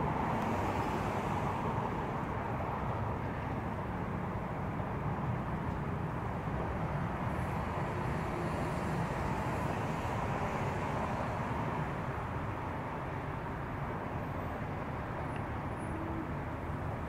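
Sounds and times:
highway traffic noise: 0:00.0 - 0:17.0.

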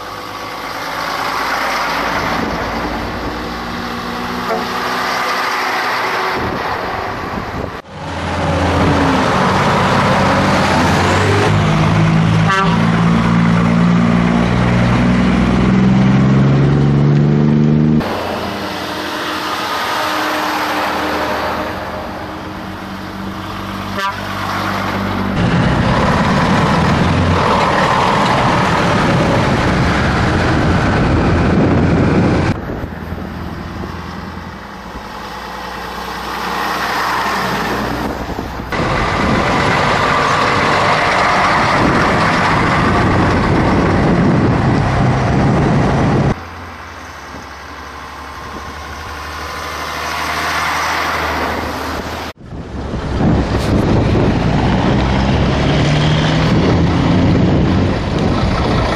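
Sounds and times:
diesel trucks passing: 0:00.0 - 0:58.9
dense loud noise: 0:38.1 - 0:50.2.

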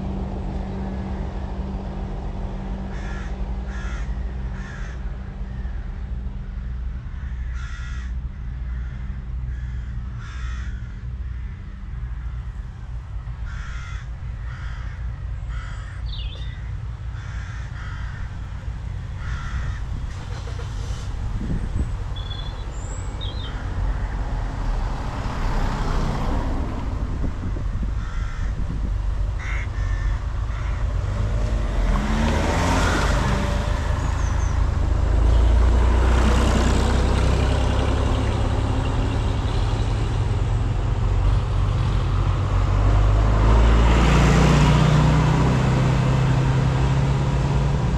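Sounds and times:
tractor diesel engine approaching: 0:00.0 - 0:47.9
bird cawing: 0:02.9 - 0:12.6, 0:13.4 - 0:20.0, 0:22.2 - 0:24.2, 0:27.9 - 0:28.6, 0:29.3 - 0:31.0, 0:32.2 - 0:34.6.

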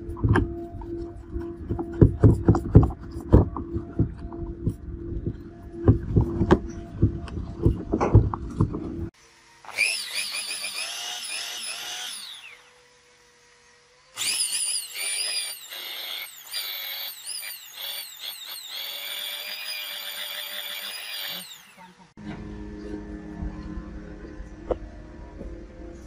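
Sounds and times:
electric hand drill motor whine: 0:09.2 - 0:22.0.

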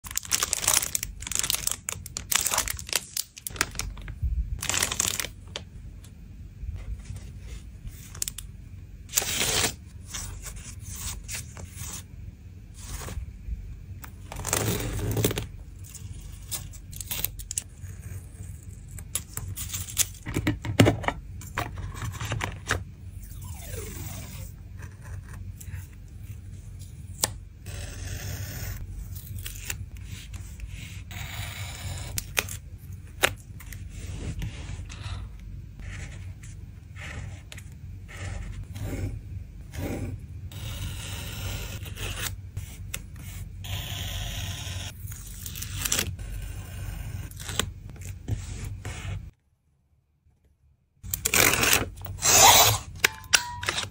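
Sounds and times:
plastic sleeves crinkling: 0:00.0 - 0:05.6.

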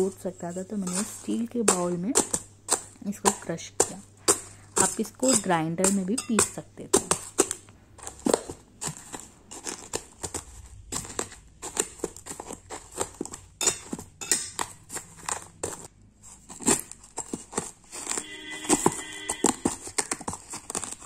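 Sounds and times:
pestle crushing crunchy snack: 0:00.0 - 0:21.0
pestle knocking against steel bowl: 0:00.8 - 0:07.6.

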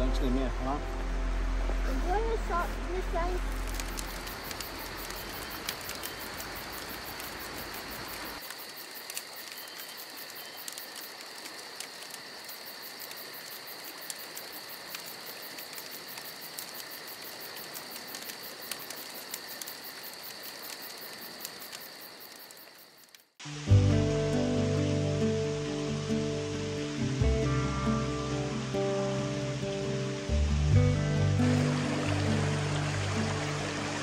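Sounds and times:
crickets trilling: 0:00.0 - 0:23.4, 0:24.0 - 0:34.0
lower insect trill: 0:02.2 - 0:23.4.

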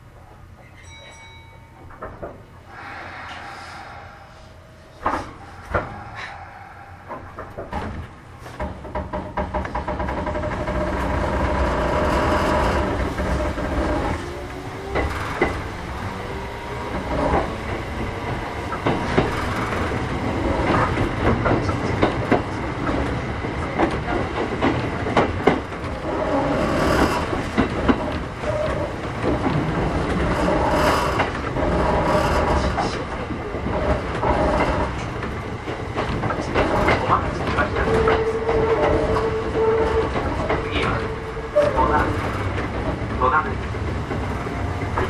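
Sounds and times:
wheels clacking over rail joints: 0:00.0 - 0:02.9, 0:05.0 - 0:45.0
electric train rolling: 0:00.0 - 0:45.0.

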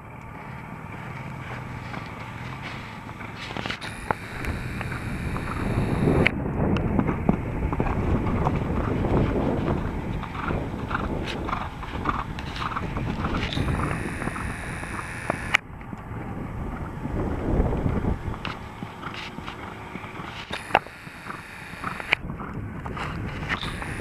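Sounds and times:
horse hoofbeats on sand: 0:00.0 - 0:03.9, 0:06.8 - 0:14.5, 0:17.8 - 0:24.0
wind buffeting microphone: 0:00.0 - 0:24.0
sharp click: 0:03.5 - 0:06.4, 0:13.4 - 0:15.6, 0:20.4 - 0:22.2, 0:23.5 - 0:24.0.

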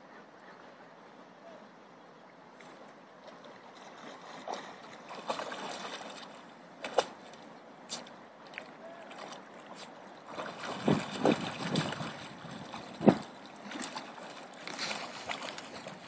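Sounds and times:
dog splashing through water: 0:03.8 - 0:07.3, 0:07.9 - 0:16.0.

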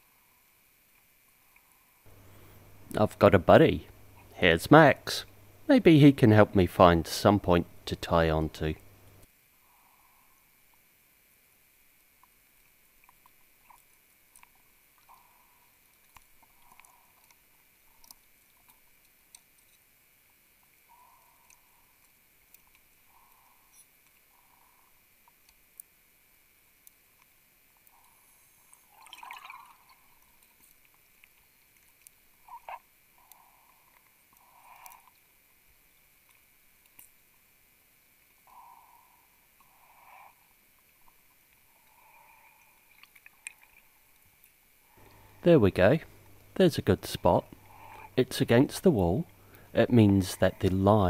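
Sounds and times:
faint underwater clicks: 0:40.8 - 0:45.4.

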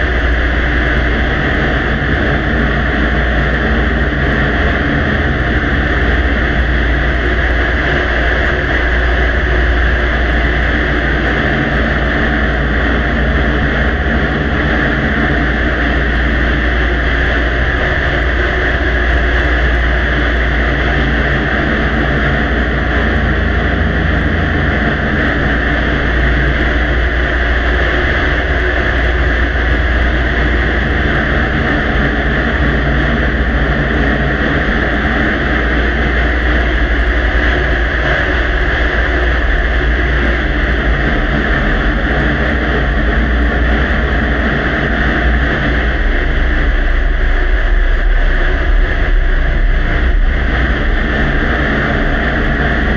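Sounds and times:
low rumble and hum: 0:00.0 - 0:52.9.

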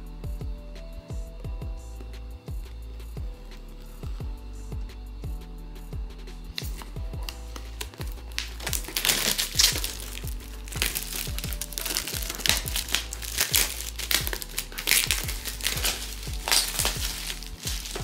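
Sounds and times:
plastic wrap crinkling: 0:06.6 - 0:18.0.

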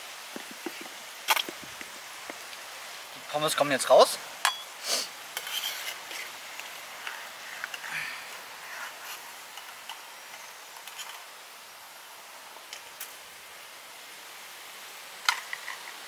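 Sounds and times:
hot oil sizzling: 0:00.0 - 0:16.0
wire skimmer clinking on metal pot: 0:04.4 - 0:04.7.

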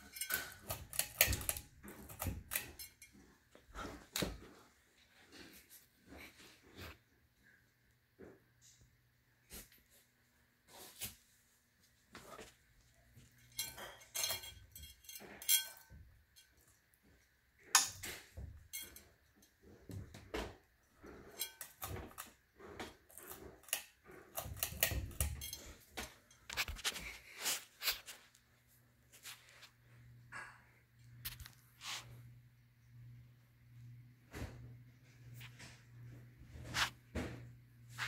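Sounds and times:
clinks and knocks: 0:00.0 - 0:03.3, 0:13.2 - 0:16.8, 0:17.7 - 0:26.9.

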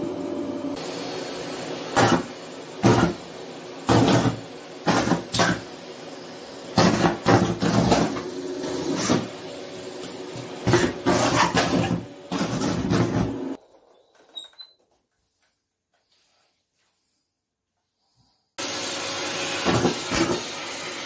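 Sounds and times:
vacuum cleaner humming: 0:00.0 - 0:13.8, 0:18.6 - 0:21.0.

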